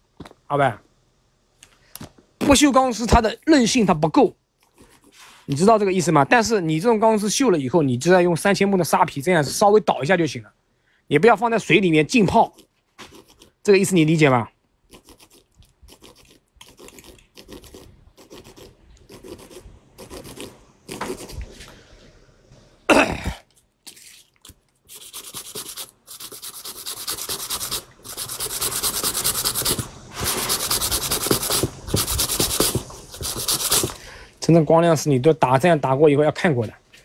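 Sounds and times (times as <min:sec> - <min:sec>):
sandpaper rubbing on metal: 0:24.9 - 0:34.0.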